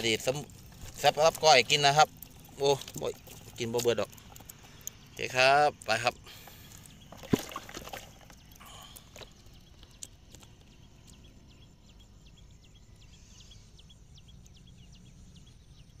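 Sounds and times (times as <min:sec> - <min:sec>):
low background rumble: 0:00.0 - 0:16.0
shrimp flicking ticks: 0:00.2 - 0:07.1, 0:08.1 - 0:11.3.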